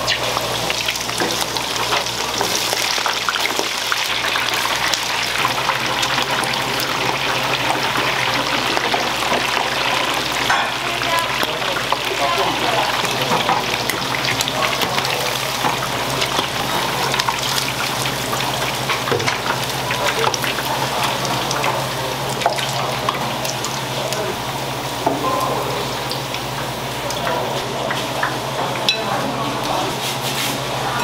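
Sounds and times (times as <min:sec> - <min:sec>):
oil bubbling in a deep fryer: 0:00.0 - 0:31.0.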